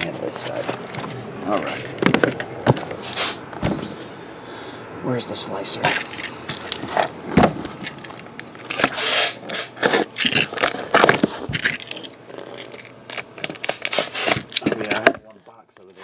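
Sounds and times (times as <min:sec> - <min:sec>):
cardboard tearing: 0:08.5 - 0:16.0.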